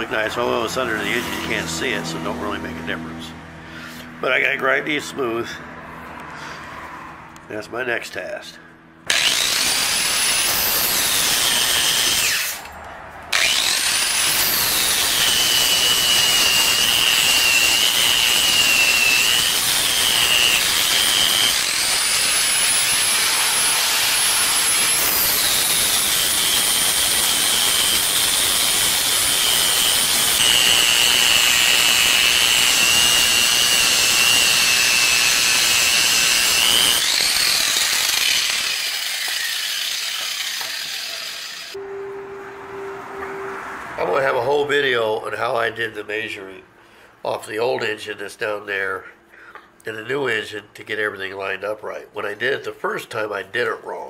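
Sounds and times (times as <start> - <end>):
angle grinder grinding metal: 9.1 - 41.8.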